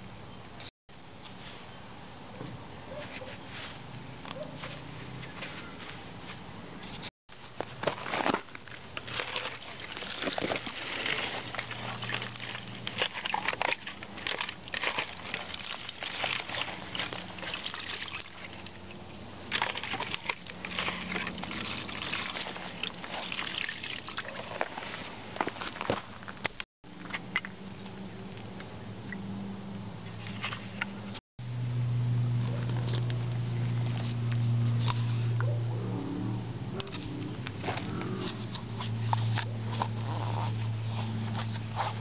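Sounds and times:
wet sloshing and squelching: 8.9 - 26.2.

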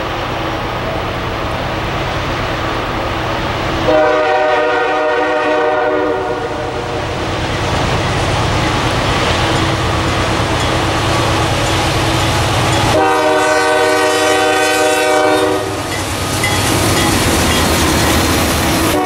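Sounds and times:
train rumbling: 0.0 - 19.0
locomotive air horn blast: 3.9 - 7.0, 12.9 - 15.9.

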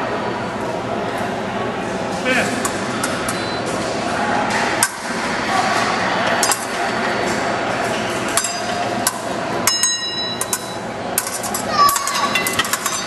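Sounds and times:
steady background hum: 0.0 - 13.0
fencing blades clinking: 6.4 - 13.0.

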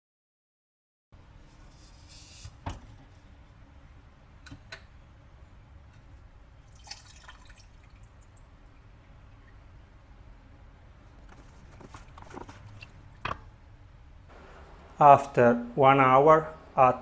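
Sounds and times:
condensation dripping into liquid: 6.6 - 9.8.

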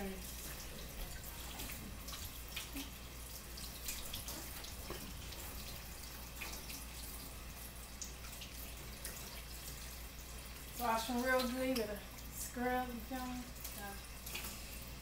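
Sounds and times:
tap running: 3.8 - 7.2.

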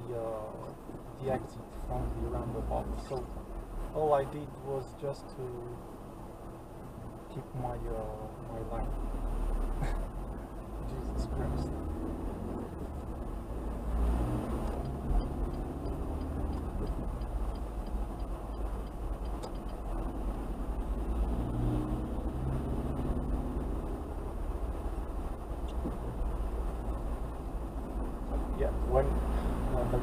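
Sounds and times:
car engine rumble from inside: 0.0 - 30.0
faint high ticking: 14.5 - 20.5.

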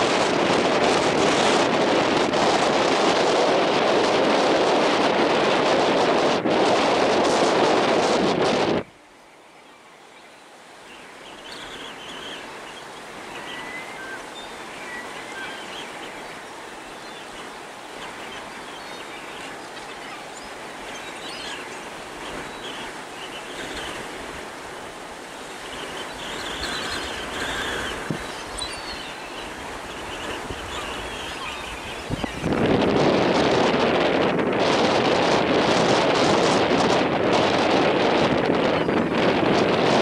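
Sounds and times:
gulls calling: 9.4 - 32.9.

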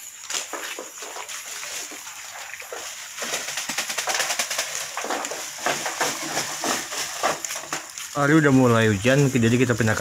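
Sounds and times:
rain patter: 0.0 - 10.0.

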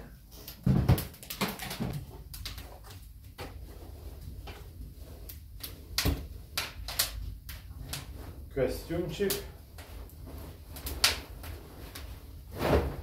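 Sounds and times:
protective coverall rustling: 8.0 - 13.0.

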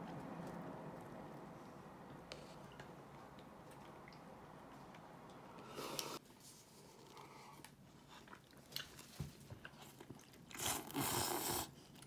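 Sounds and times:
chewing noodles: 7.0 - 12.0
noodle slurp: 10.5 - 11.8.

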